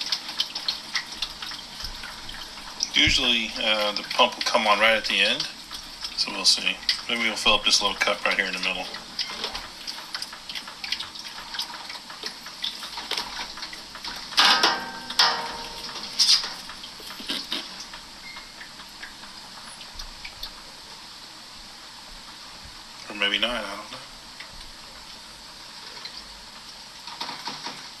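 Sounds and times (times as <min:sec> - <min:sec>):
washing machine spinning: 0:00.0 - 0:28.0
water spattering and dripping: 0:00.0 - 0:28.0
splashes and knocks: 0:09.2 - 0:17.4.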